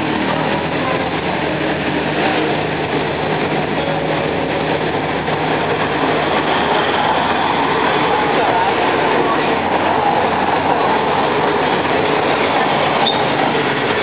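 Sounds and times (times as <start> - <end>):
engine hum: 0.0 - 14.0
rolling road noise: 0.0 - 14.0.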